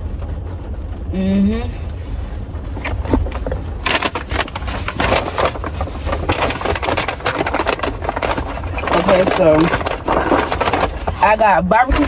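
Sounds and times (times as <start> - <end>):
low steady hum: 0.0 - 12.0
paper bag rustling and crinkling: 3.0 - 12.0.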